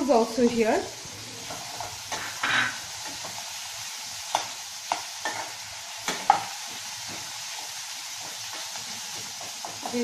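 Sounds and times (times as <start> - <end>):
onions sizzling in hot oil: 0.0 - 10.0
metal spatula scraping pan: 1.1 - 3.4.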